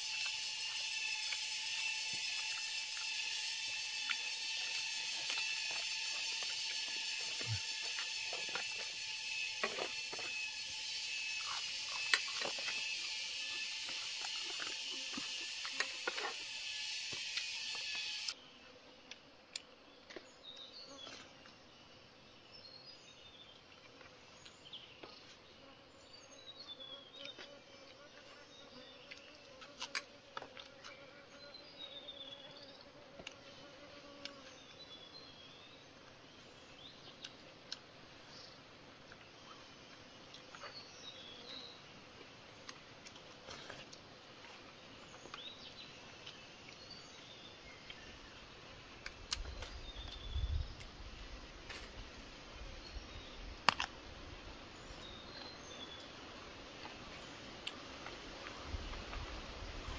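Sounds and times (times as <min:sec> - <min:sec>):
high insect chorus: 0:00.0 - 0:18.8.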